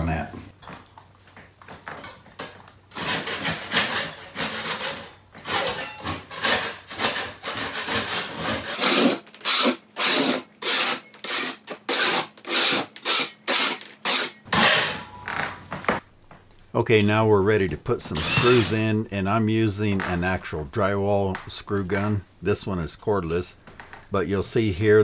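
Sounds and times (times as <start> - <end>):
scraper blade scraping drywall: 2.9 - 14.7.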